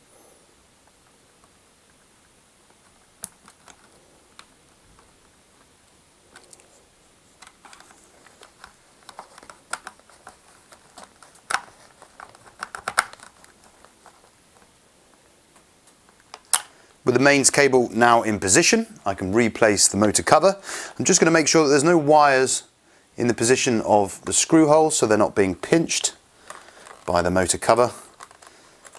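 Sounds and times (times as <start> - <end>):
plastic and metal parts clicking: 3.2 - 5.7, 7.4 - 14.7, 26.4 - 28.9.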